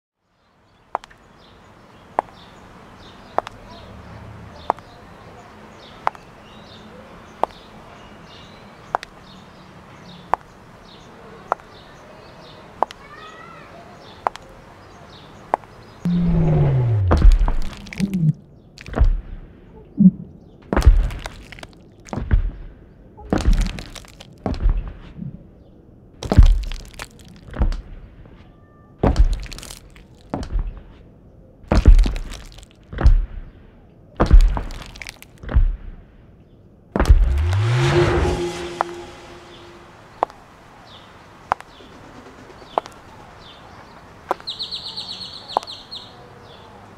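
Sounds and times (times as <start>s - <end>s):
faint birds chirping: 0.2s - 20.7s
crackling crash: 16.1s - 18.4s, 37.0s - 40.4s
giant footsteps thudding: 16.1s - 19.4s, 26.2s - 26.8s, 31.7s - 33.4s, 34.2s - 35.9s, 37.0s - 37.6s
high heels clicking on stone: 31.7s - 32.7s.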